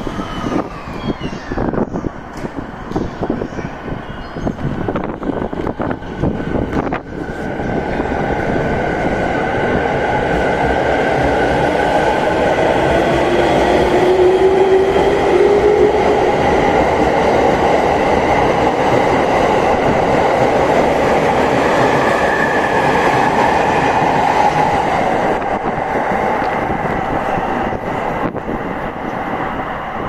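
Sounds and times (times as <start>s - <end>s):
train cars rumbling: 0.0s - 30.0s.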